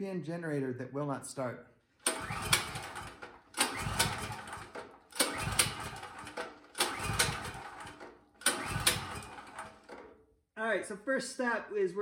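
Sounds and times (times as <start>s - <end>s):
generator recoil starter pulls: 2.0s - 10.2s.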